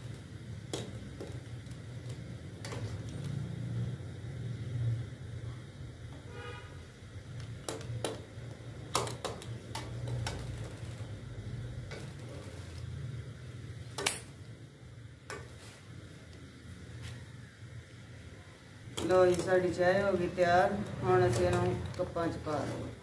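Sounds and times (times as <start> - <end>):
ladle stirring in metal pot: 7.6 - 13.2, 18.9 - 23.0.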